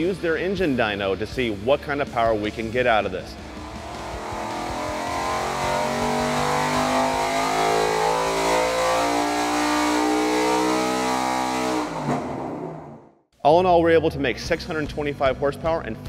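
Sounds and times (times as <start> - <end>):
engine revving at full throttle: 2.5 - 13.0.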